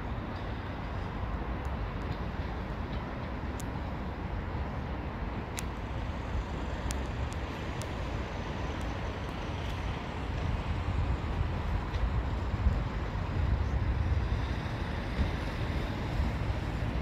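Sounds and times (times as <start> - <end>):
diesel train rumbling: 0.0 - 17.0
faint sharp clicks: 3.5 - 3.8, 5.5 - 5.8, 6.8 - 8.0, 8.7 - 9.8.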